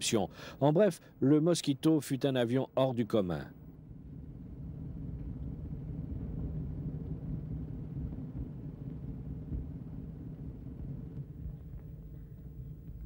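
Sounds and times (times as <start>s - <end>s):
low engine rumble: 3.5s - 13.0s.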